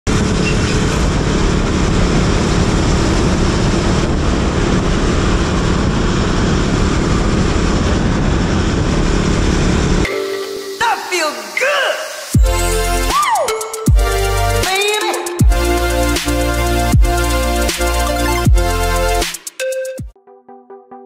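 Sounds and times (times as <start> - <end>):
motorcycle engine hum: 0.1 - 10.1.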